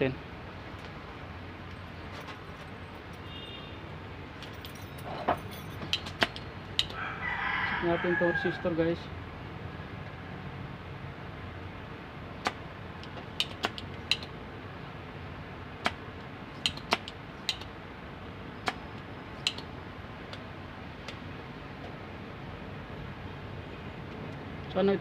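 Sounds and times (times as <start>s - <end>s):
sharp clicks and taps: 5.8s - 7.0s, 12.4s - 14.3s, 15.8s - 17.7s, 18.6s - 19.7s.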